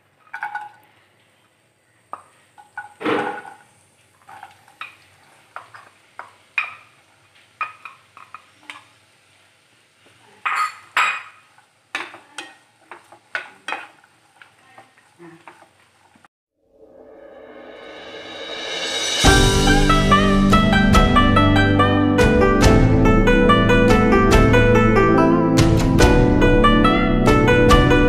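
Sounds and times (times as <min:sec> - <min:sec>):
wooden spatula scraping a pan: 0:02.8 - 0:06.9, 0:12.0 - 0:16.2.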